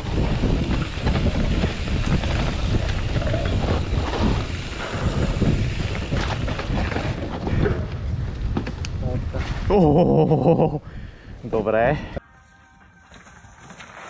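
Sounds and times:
tyres rumbling on dirt: 0.0 - 9.6
bike rattling over bumps: 0.0 - 9.7
wind buffeting microphone: 0.0 - 9.8.

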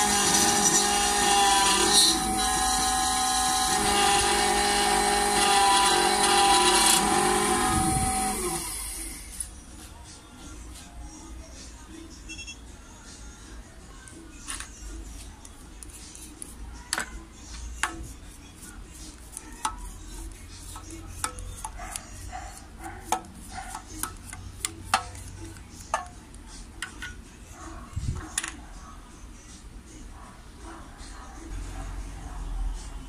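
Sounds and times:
metal clicks and taps: 23.1 - 26.2.

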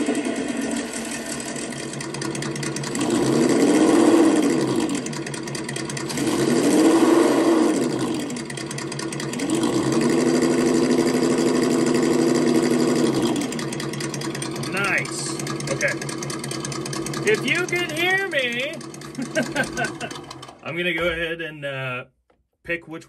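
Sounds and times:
simulated engine revving from speaker: 2.9 - 5.2, 6.0 - 8.5, 9.3 - 13.8.

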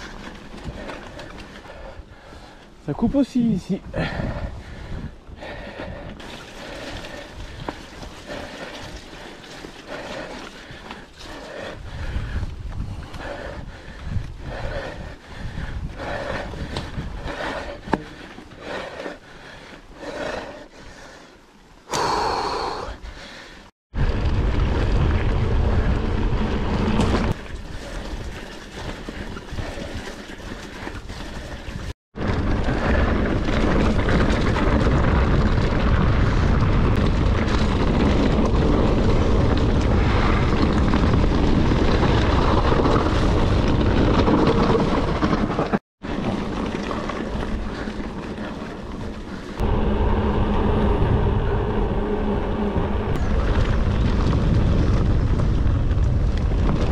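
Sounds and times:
bike rattling and clicking: 0.0 - 21.4, 24.0 - 56.9
wind buffeting microphone: 3.8 - 21.1, 22.9 - 56.9
tyres rumbling on dirt: 23.9 - 56.9.

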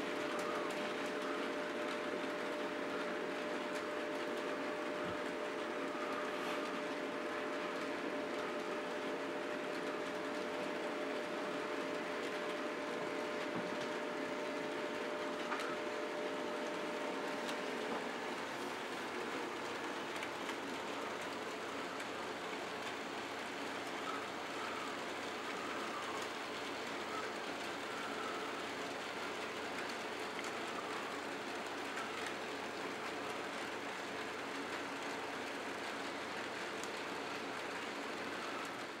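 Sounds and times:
model trains rolling on track: 0.0 - 39.0.

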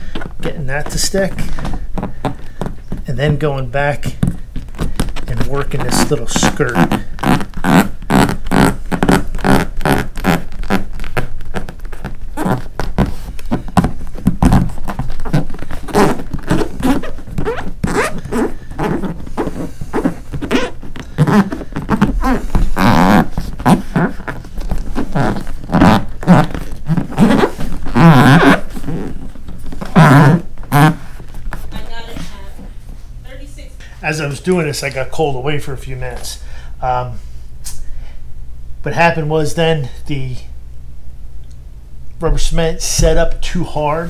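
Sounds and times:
hand rubbing vinyl patch: 0.0 - 33.7
vinyl squeaks: 3.8 - 32.4.

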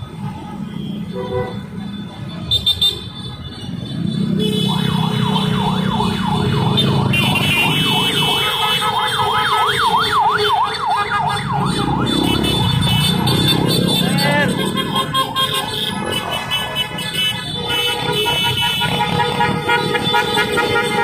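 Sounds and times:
motorcycle engines running: 3.6 - 21.0
siren yelping: 4.4 - 16.5.

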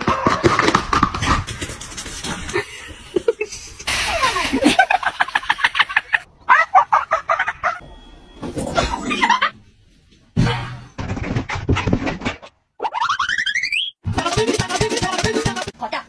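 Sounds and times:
people laughing: 2.5 - 7.8
people talking: 14.2 - 16.0.

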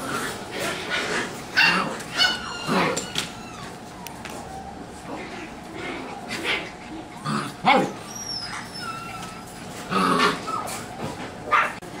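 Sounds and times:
puppies yipping and barking: 0.0 - 11.9
puppies whining: 0.0 - 12.0.

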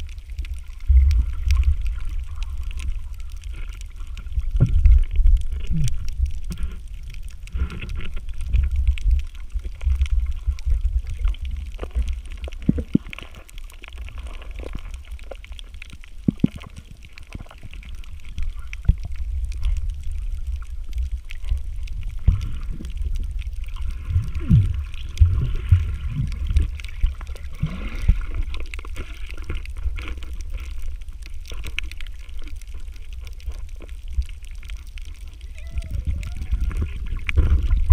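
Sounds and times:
muffled underwater rumble: 0.0 - 37.9
underwater clicks: 0.0 - 37.9.

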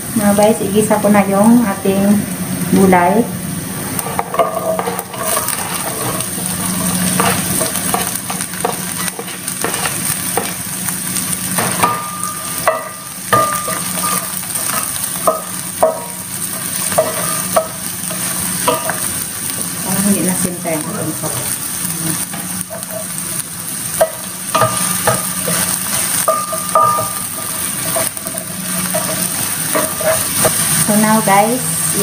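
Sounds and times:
vegetables sizzling in oil: 0.0 - 32.0
spoon scraping pan: 4.0 - 10.6, 24.0 - 30.8.

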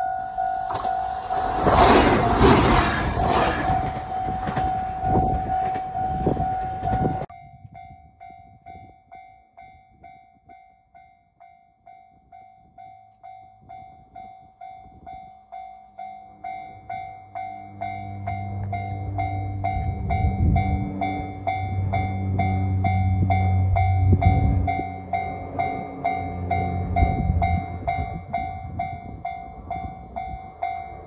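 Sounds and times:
level crossing warning bell: 0.0 - 1.6, 3.4 - 31.0
electric train rushing past: 0.0 - 7.3, 16.3 - 31.0
low hum of approaching train: 0.0 - 31.0.

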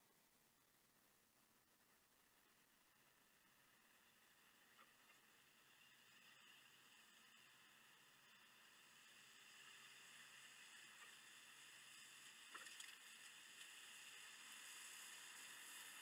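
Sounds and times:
faint steady hiss: 0.0 - 16.0
faint clicks: 4.5 - 6.8, 12.3 - 13.8.

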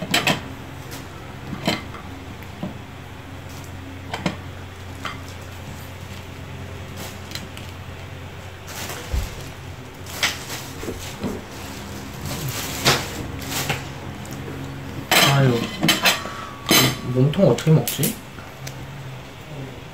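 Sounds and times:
steady low hum: 0.0 - 19.9
plastic bag crinkling: 5.2 - 14.8.

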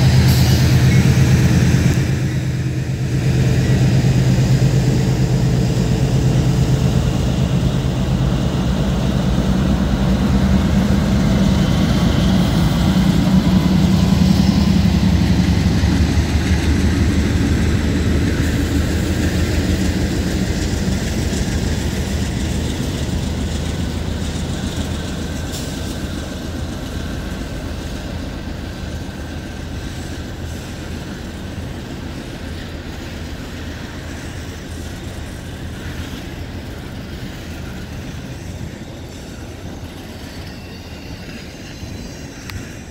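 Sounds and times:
freight cars rumbling by: 0.0 - 29.4
diesel locomotive engines: 0.0 - 42.9.

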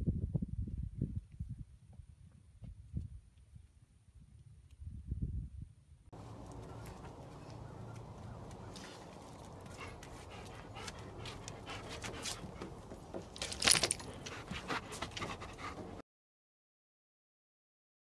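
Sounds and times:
quiet dog sounds: 6.2 - 13.0.

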